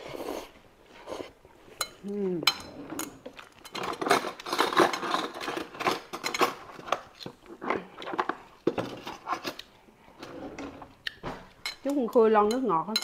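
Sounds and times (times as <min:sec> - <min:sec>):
utensils clinking on plate: 0:01.7 - 0:07.4, 0:11.6 - 0:13.0.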